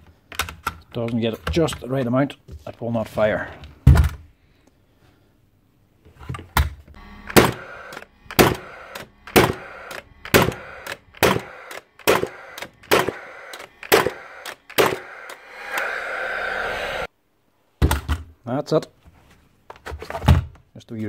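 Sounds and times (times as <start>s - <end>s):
steady whir: 7.0s - 17.1s
nail gun bangs: 8.3s - 9.7s, 10.3s - 10.6s, 11.2s - 13.2s, 13.8s - 14.2s.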